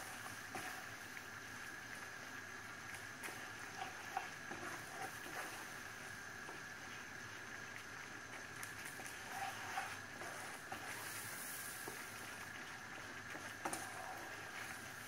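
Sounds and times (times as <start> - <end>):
faint sizzle in frying pan: 0.0 - 15.0
wooden spatula scraping and tapping: 9.0 - 11.1, 13.3 - 14.8.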